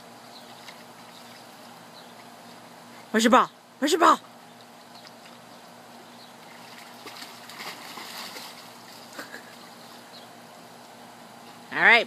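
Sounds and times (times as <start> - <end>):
pool water sloshing: 0.0 - 3.1, 4.5 - 11.0
faint steady hum: 0.0 - 12.0
small water splashes: 0.3 - 2.6, 6.4 - 10.0.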